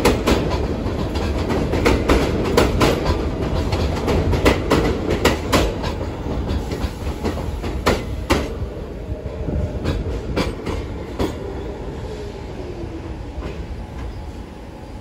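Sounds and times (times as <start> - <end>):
train wheels clacking over rail joints: 0.0 - 8.6, 9.8 - 11.4
train slowing whine: 0.0 - 15.0.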